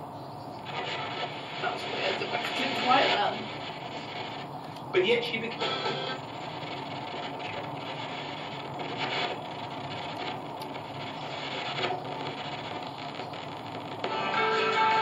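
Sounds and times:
radio static hiss: 0:00.0 - 0:15.0
brief radio blips: 0:00.6 - 0:04.5, 0:05.3 - 0:10.4.

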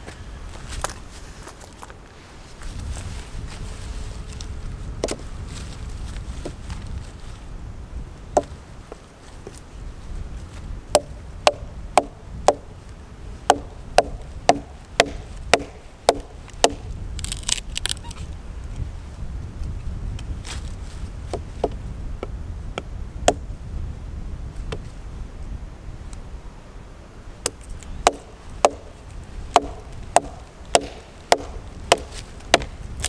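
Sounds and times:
low wind rumble: 0:00.0 - 0:33.0
hatchet chopping wood: 0:10.9 - 0:12.7, 0:13.4 - 0:16.9, 0:22.8 - 0:23.4, 0:27.4 - 0:32.8
wood splitting crackle: 0:13.4 - 0:18.1, 0:27.4 - 0:33.0.

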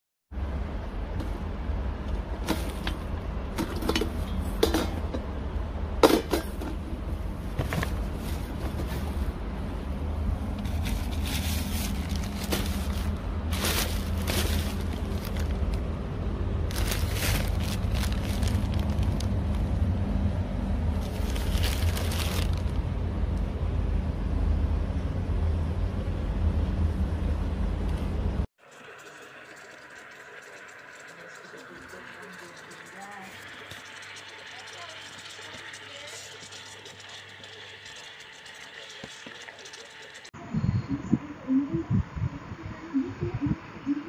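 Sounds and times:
low background rumble: 0:00.4 - 0:28.5, 0:40.3 - 0:44.0
plastic bag crinkling: 0:10.7 - 0:15.8, 0:16.7 - 0:19.8, 0:21.0 - 0:22.8.

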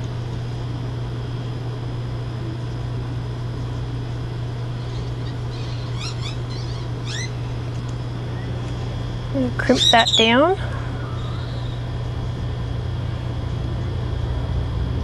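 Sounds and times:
steady low hum: 0:00.0 - 0:15.0
small bird chirping: 0:04.8 - 0:07.6, 0:09.6 - 0:11.8.

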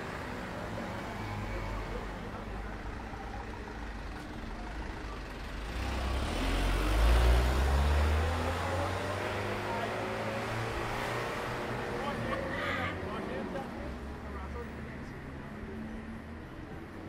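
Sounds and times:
car passing: 0:05.6 - 0:14.8.

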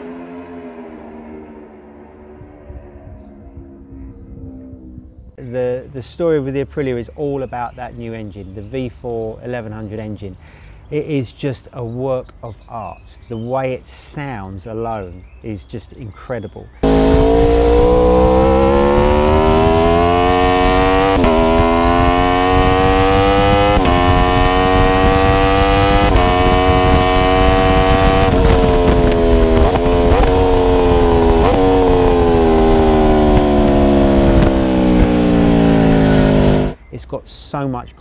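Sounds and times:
motorcycle engine revving through gears: 0:00.0 - 0:05.2, 0:16.8 - 0:36.8.

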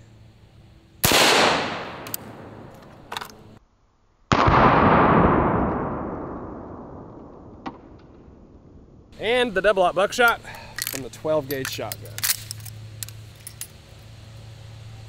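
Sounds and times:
rifle shot with echo: 0:01.0 - 0:02.8, 0:04.3 - 0:08.9.

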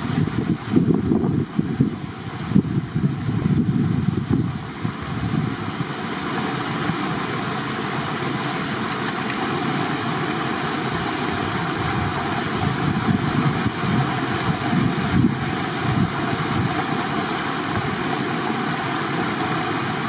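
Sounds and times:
wind buffeting microphone: 0:00.0 - 0:05.9, 0:10.9 - 0:17.0.

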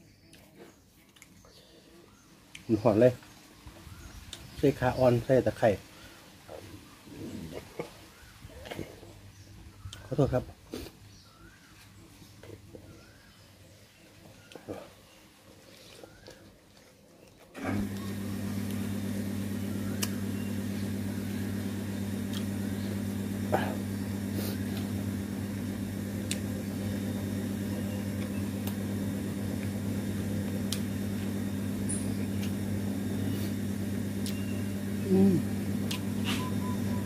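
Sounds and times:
low machine hum: 0:17.6 - 0:37.0.

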